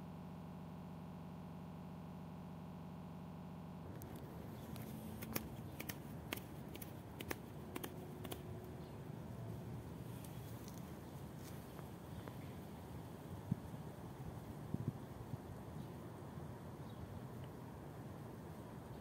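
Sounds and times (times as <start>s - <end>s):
steady low hum: 0.0s - 19.0s
dry leaves crackling underfoot: 4.0s - 9.2s, 9.8s - 12.9s.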